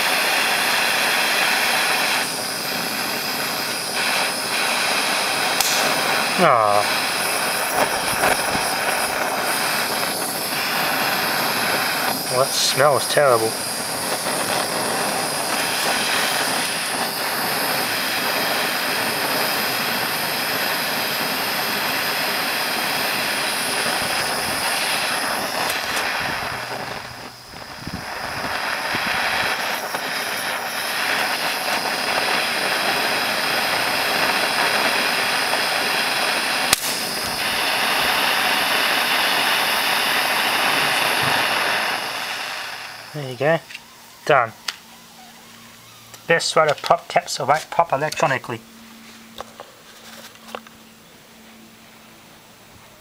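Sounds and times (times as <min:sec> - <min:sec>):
blowtorch hissing: 0:00.0 - 0:53.0
sharp click: 0:05.6 - 0:05.9, 0:36.7 - 0:37.4.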